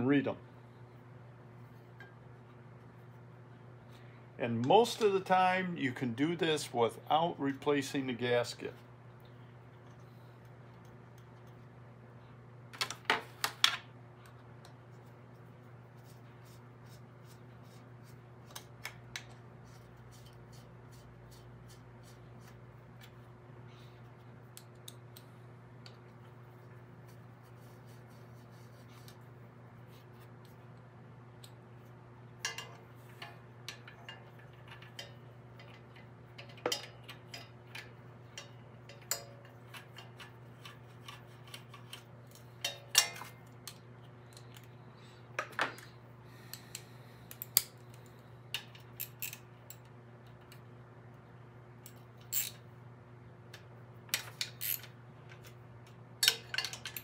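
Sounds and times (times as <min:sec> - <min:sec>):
metal tools clicking: 0:56.2 - 0:57.0.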